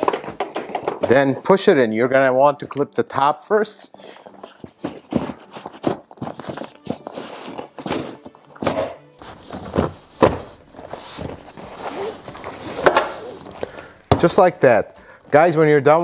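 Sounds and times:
seat bolster thunking into clips: 9.5s - 11.4s.

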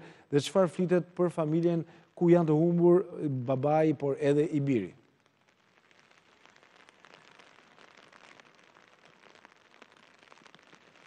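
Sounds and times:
rain on an umbrella: 5.2s - 11.0s.

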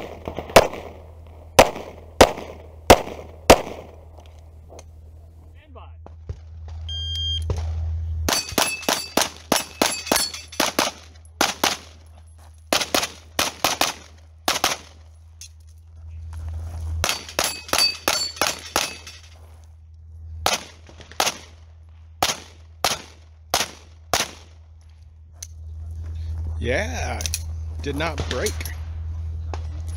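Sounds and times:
pistol shots: 0.0s - 1.0s, 1.6s - 4.0s, 7.5s - 11.9s, 12.7s - 15.0s, 20.4s - 21.6s, 22.2s - 24.5s
short high beep: 6.9s - 7.4s
bullets ringing on steel targets: 8.3s - 11.0s, 17.0s - 19.3s.

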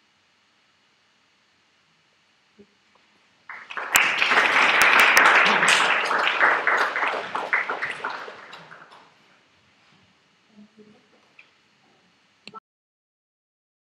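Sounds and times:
audience applauding: 3.5s - 9.2s.

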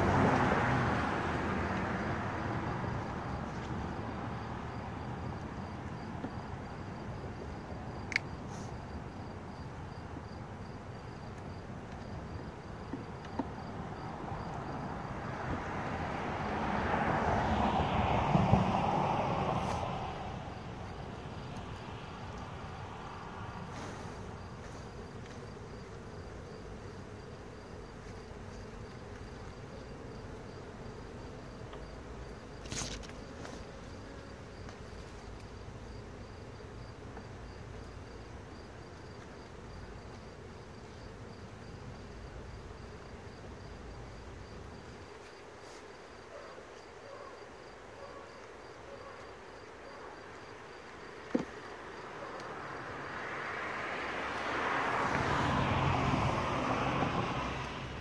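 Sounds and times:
honeybees buzzing: 0.0s - 46.3s.

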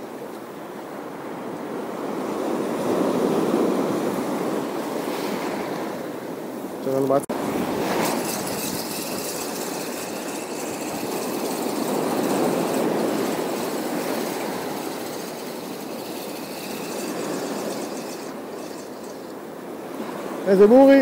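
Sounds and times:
sea waves washing ashore: 0.0s - 21.0s.

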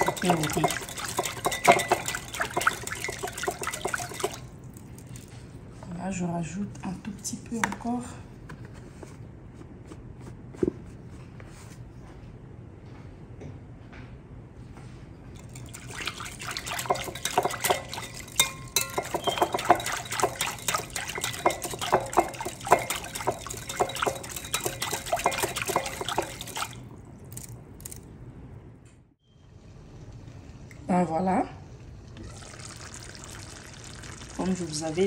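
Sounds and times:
whisk clinking against glass bowl: 0.0s - 4.5s, 15.4s - 26.8s
liquid sloshing: 0.0s - 5.6s, 15.4s - 28.1s, 31.8s - 35.0s.

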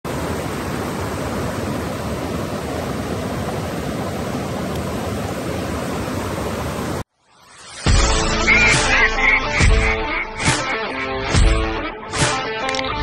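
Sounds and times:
stream running over boulders: 0.1s - 7.1s.

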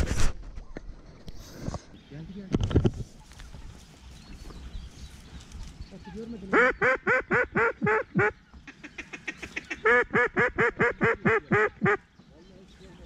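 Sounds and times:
duck quacking: 6.5s - 12.0s.

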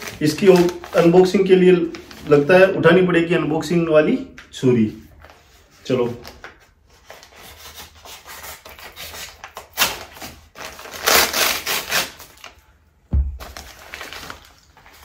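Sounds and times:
dull thump: 13.1s - 13.6s.

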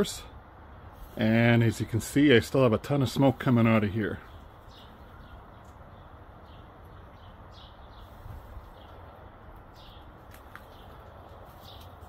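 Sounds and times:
low outdoor rumble: 0.0s - 12.0s
small bird chirping: 4.2s - 12.0s.

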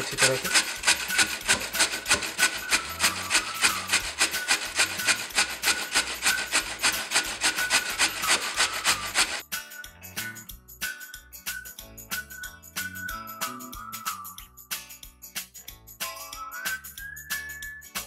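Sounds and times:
potato being grated on metal grater: 0.0s - 9.4s.

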